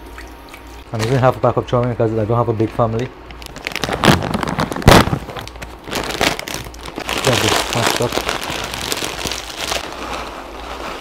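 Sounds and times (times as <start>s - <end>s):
plastic bag crinkling: 2.7s - 11.0s
plastic packet ripping open: 3.3s - 11.0s.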